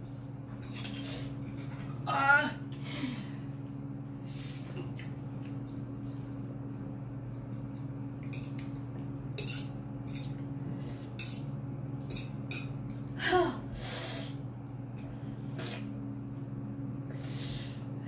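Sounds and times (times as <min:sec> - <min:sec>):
fork scraping ceramic plate: 0:09.4 - 0:10.3.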